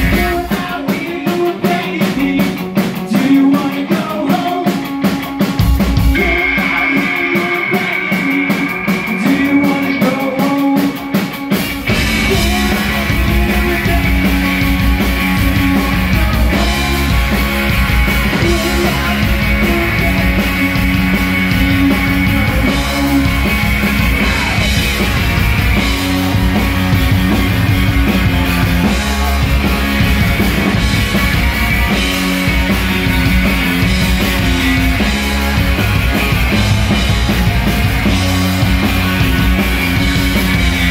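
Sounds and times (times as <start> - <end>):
bass guitar: 0.0 - 40.9
drum kit: 0.0 - 40.9
electric guitars: 0.0 - 40.9.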